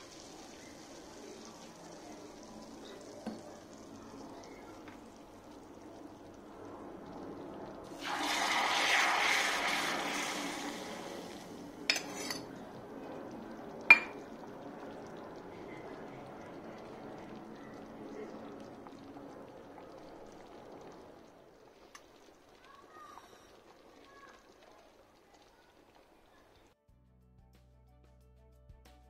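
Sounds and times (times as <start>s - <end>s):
liquid pouring into pot: 0.0s - 26.1s
stew bubbling: 0.0s - 26.8s
metal spoon clinking on pot: 11.9s - 12.5s, 13.9s - 14.2s.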